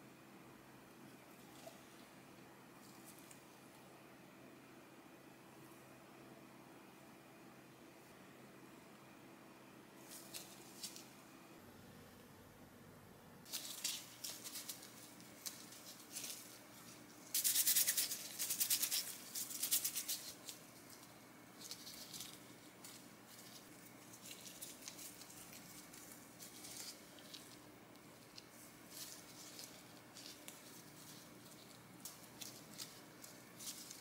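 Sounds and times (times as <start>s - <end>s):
plastic gloves crinkling: 10.0s - 11.2s, 13.4s - 34.0s.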